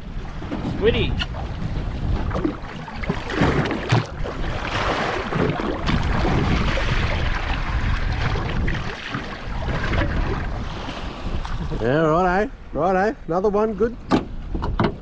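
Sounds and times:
sea splashing against boat hull: 0.0 - 11.8
wind buffeting microphone: 0.0 - 12.8.

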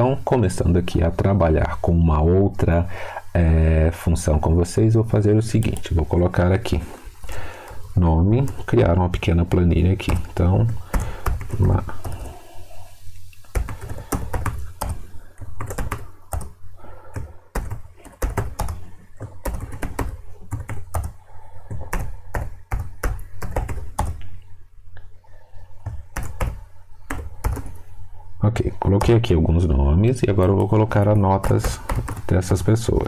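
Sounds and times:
typing on computer keyboard: 9.5 - 12.4, 13.5 - 24.3, 25.8 - 27.9, 31.4 - 32.6.

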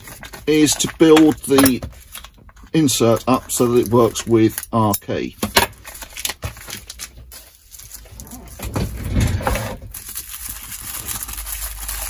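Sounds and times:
plastic and paper crinkling: 0.0 - 12.0.

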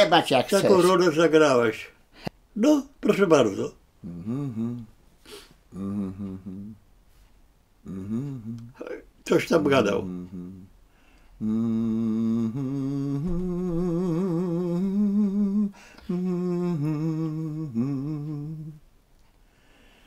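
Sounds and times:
man humming a slow melody: 4.0 - 5.0, 5.7 - 6.8, 7.8 - 9.0, 10.0 - 10.8, 11.4 - 18.8.

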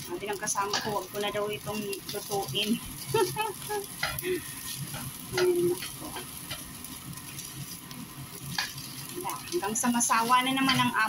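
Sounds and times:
light sizzle: 0.0 - 11.0
spatula scraping a pan: 2.2 - 11.0.

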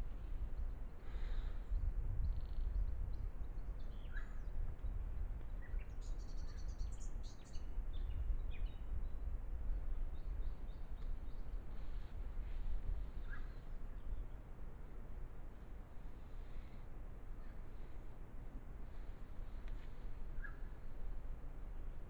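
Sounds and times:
steady low rumble: 0.0 - 22.0
small birds chirping: 2.2 - 9.2, 13.0 - 14.5, 18.9 - 20.9.

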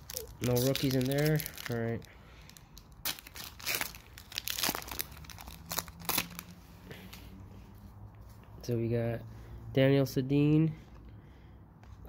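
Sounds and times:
foil wrapper crinkling and tearing: 0.0 - 6.6.

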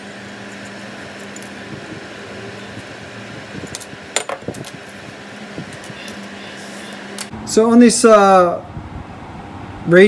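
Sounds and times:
workshop hum: 0.0 - 10.0.

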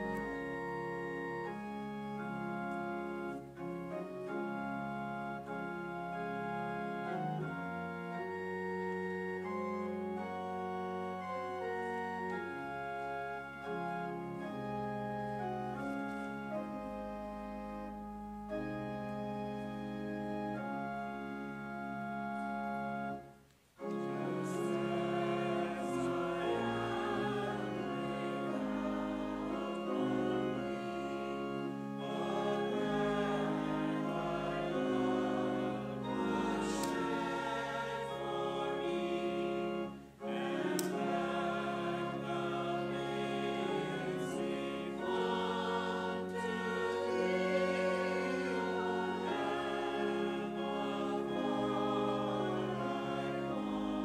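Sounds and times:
choir singing long held notes: 0.0 - 16.8, 23.8 - 54.0.

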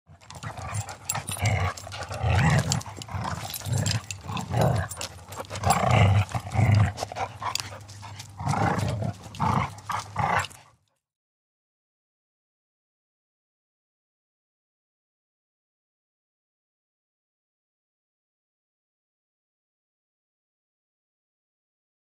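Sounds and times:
dogs barking and snorting: 0.1 - 10.8
dog collar jingling: 0.2 - 10.7.

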